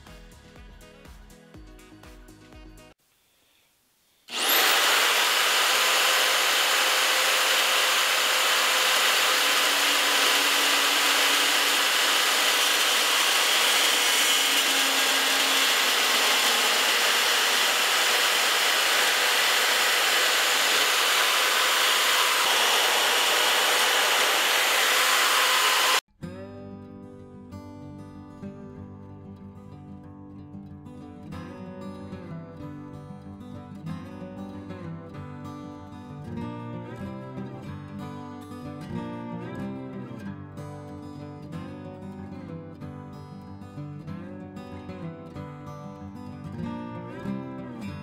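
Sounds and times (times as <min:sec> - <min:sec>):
saw motor whine: 0:04.3 - 0:26.0.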